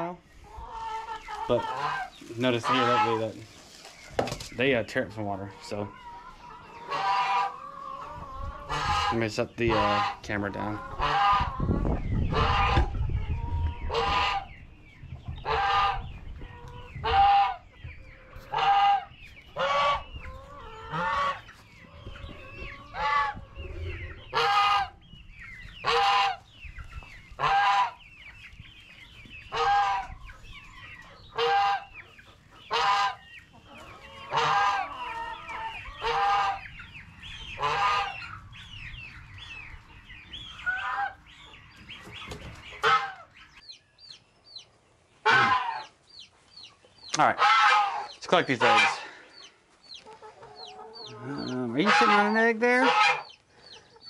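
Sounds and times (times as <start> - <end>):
chickens clucking: 0.0 - 54.0
goose honking: 0.9 - 3.4, 6.8 - 7.6, 8.7 - 11.5, 18.5 - 20.0, 20.8 - 21.4, 24.3 - 25.0, 25.8 - 26.4, 27.4 - 28.0, 29.5 - 30.1, 31.3 - 31.9, 32.7 - 33.2, 34.2 - 36.6, 37.6 - 38.2, 42.8 - 43.3, 45.2 - 45.9, 47.2 - 49.1, 51.3 - 53.3.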